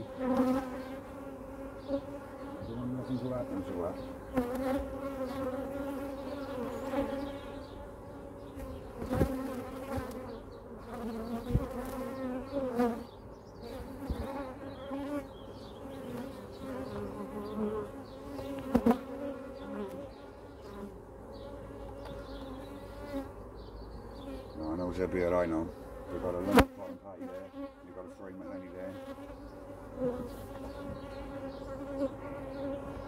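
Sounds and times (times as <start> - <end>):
bees buzzing: 0.0 - 33.0.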